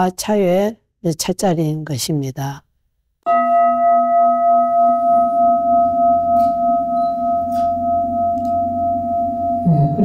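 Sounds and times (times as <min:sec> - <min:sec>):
singing bowl ringing: 0:03.3 - 0:10.0.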